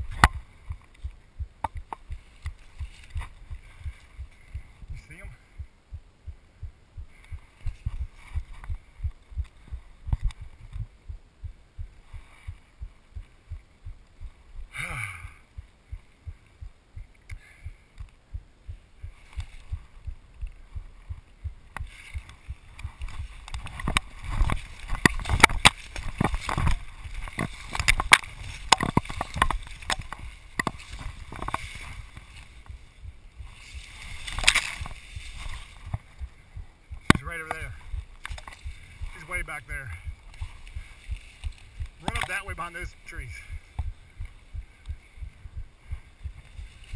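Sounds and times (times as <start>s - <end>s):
sharp cracks and crunches: 21.7s - 32.8s, 33.5s - 36.2s, 37.0s - 39.4s
footsteps in dry leaves: 22.9s - 32.6s, 33.4s - 36.2s.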